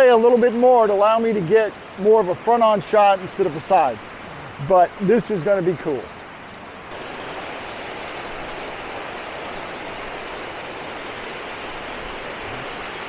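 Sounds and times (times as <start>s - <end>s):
creek cascading over rocks: 0.0s - 13.0s
waterfall rushing: 0.0s - 13.0s.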